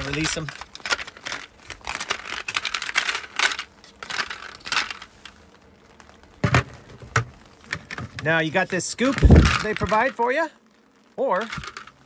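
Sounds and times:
ice cubes clattering: 0:00.0 - 0:05.1, 0:08.9 - 0:10.2, 0:11.4 - 0:12.0.

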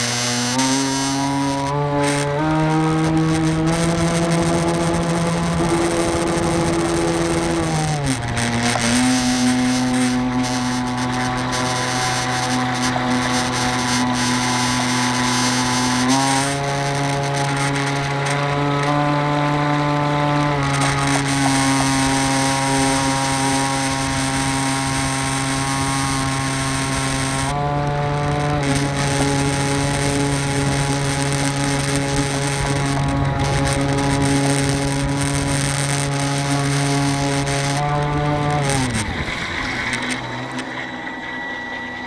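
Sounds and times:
electric motor whine: 0:00.0 - 0:42.0.

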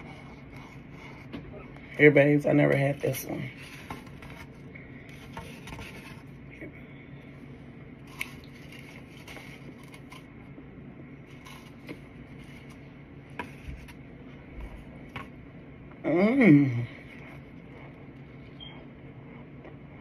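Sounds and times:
steady hum: 0:00.0 - 0:20.0
crunching and chewing: 0:08.0 - 0:10.5.

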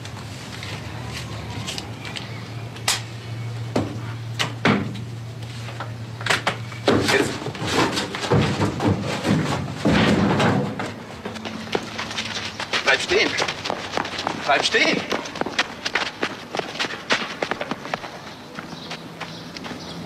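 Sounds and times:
scuffling and running footsteps: 0:06.8 - 0:20.0.

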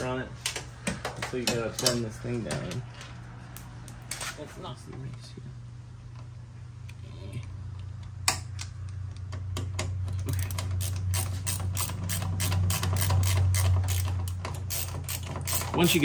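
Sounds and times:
screwdriver ratchet clicking: 0:10.2 - 0:16.0.

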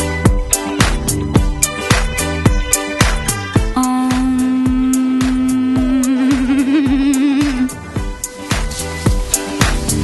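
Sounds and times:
steady drum beat: 0:00.3 - 0:10.0
long held note: 0:03.8 - 0:07.4.

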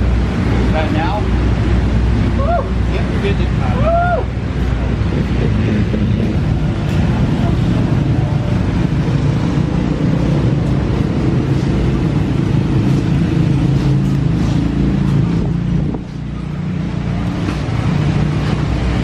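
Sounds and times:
low mechanical drone: 0:00.0 - 0:19.0.

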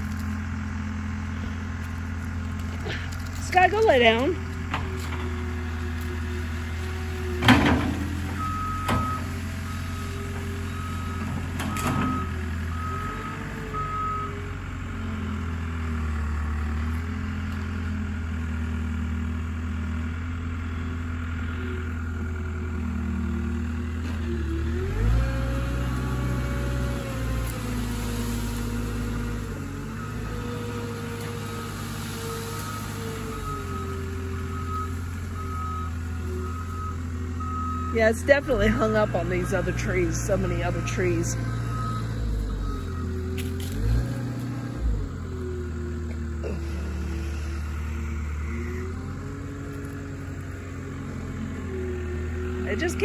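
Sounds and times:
loader diesel engine: 0:00.0 - 0:53.0
back-up alarm beeping: 0:32.6 - 0:43.2.

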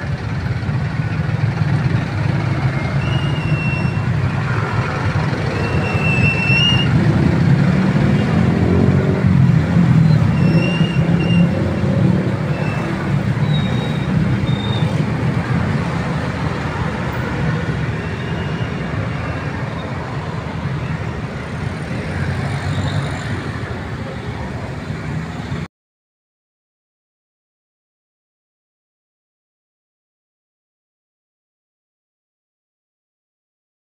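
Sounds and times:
motorcycles and cars pulling away: 0:00.0 - 0:25.7.

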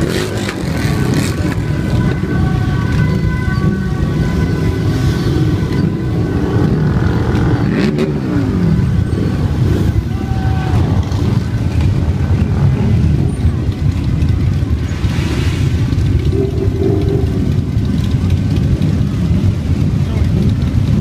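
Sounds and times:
motorcycle engines rumbling past: 0:00.0 - 0:21.0.

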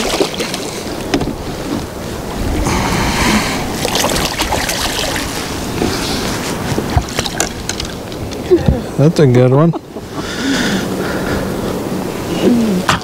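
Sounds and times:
water splashing against boat: 0:00.0 - 0:08.9
wind buffeting microphone: 0:00.0 - 0:13.0
burst of splashing: 0:02.4 - 0:05.7.

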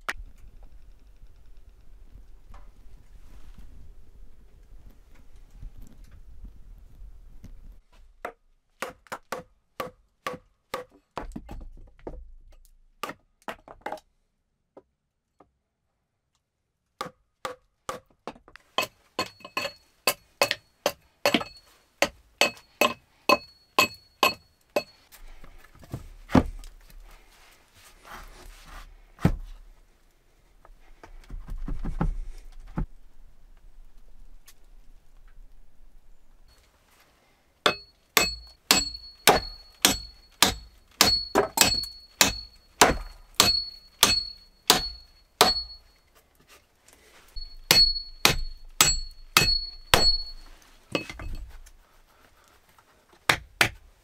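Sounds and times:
hatchet hammering nails into wood: 0:08.2 - 0:11.0, 0:17.0 - 0:18.1, 0:18.8 - 0:25.0, 0:37.7 - 0:45.8, 0:47.4 - 0:50.4, 0:53.3 - 0:53.8.

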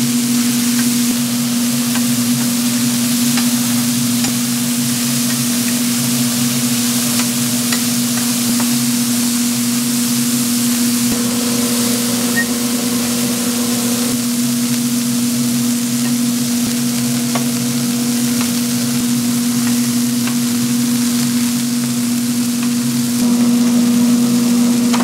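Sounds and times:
even hiss: 0:00.0 - 0:25.0
kitchen machinery humming: 0:00.0 - 0:25.0.

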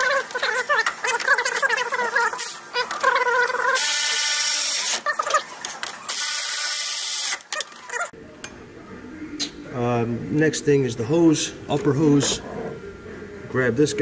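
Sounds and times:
power tool whirring: 0:03.8 - 0:05.0, 0:06.1 - 0:07.6.

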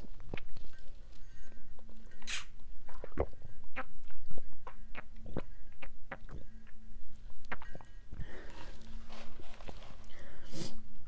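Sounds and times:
wet chewing clicks and smacks: 0:01.8 - 0:07.9
sipping through a straw: 0:02.1 - 0:03.3.

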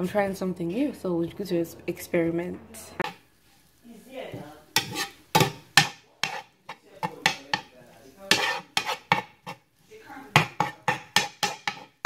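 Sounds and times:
spatula scraping frying pan: 0:03.0 - 0:12.0.

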